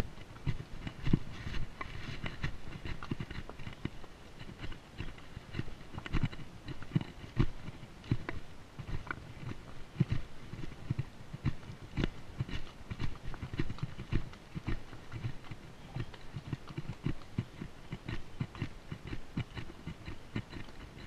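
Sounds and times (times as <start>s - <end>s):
horse hooves on rocky trail: 0.0s - 21.0s.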